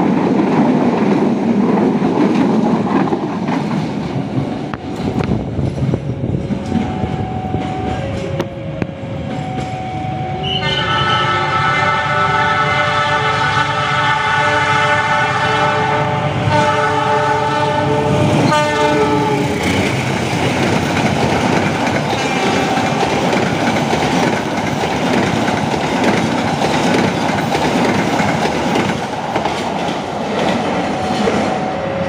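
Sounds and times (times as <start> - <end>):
train coaches rumbling past: 0.0 - 32.0
locomotive horn blast: 9.6 - 19.6.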